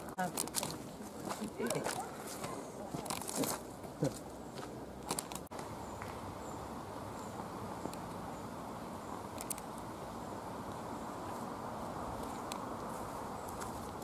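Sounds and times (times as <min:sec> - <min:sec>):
footsteps on a footpath: 0:00.2 - 0:06.3, 0:10.7 - 0:14.0
steady low hiss: 0:03.6 - 0:14.0.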